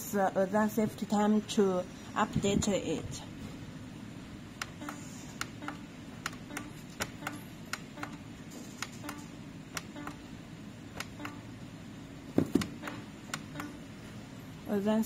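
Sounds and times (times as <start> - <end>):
plastic push buttons clicking: 4.6 - 8.2, 8.8 - 10.2, 11.0 - 11.4, 12.4 - 13.8.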